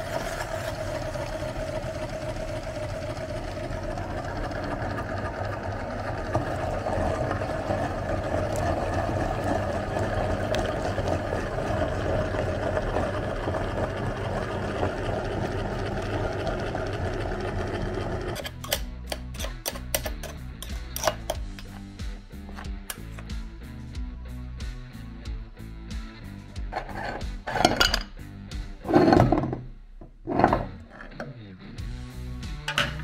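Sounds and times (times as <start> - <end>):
meat grinder running: 0.0 - 21.4.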